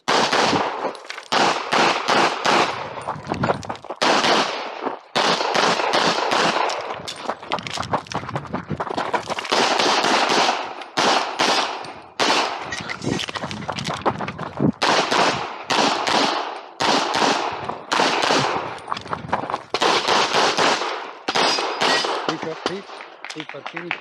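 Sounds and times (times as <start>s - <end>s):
pistol shots: 0.0s - 3.0s, 4.0s - 7.0s, 9.5s - 12.7s, 14.8s - 18.8s, 19.7s - 23.3s.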